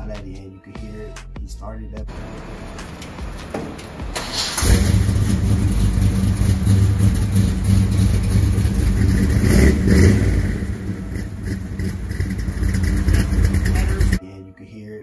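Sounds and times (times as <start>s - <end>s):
car engine deep rumble: 2.0s - 14.2s.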